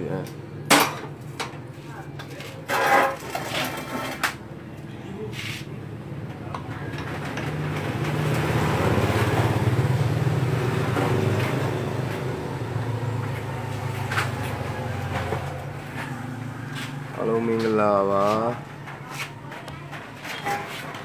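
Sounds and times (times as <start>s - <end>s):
vehicle engine droning: 5.9s - 20.0s.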